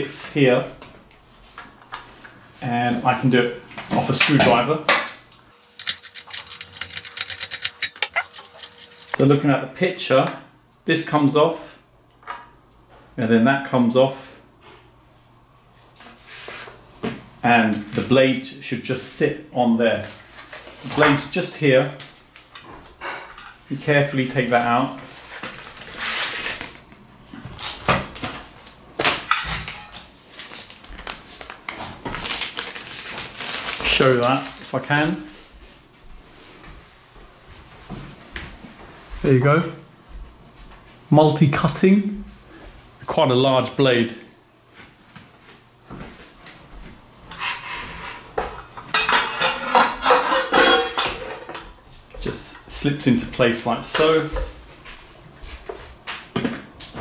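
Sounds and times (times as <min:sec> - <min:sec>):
packaging rustling: 0:05.6 - 0:09.2, 0:25.0 - 0:26.9, 0:30.3 - 0:35.2.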